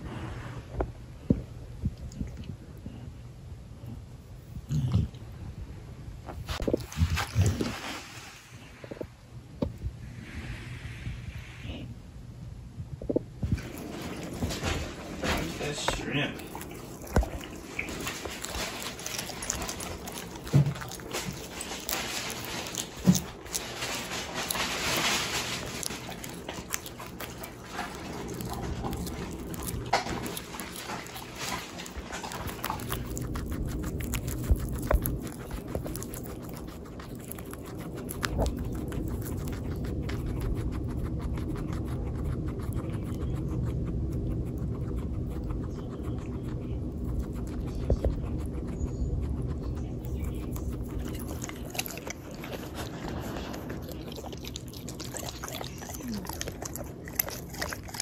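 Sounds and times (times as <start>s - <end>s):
crisp chewing crunches: 6.3s - 9.0s, 13.4s - 58.0s
dog breathing heavily: 13.5s - 58.0s.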